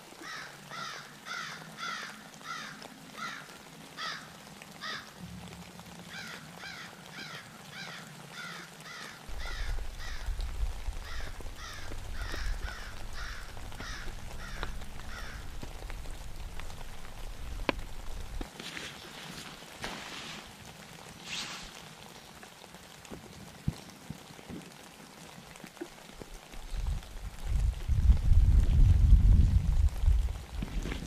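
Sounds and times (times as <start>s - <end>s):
crows cawing: 0.2s - 5.2s, 6.0s - 18.4s
low rumble: 9.3s - 18.5s.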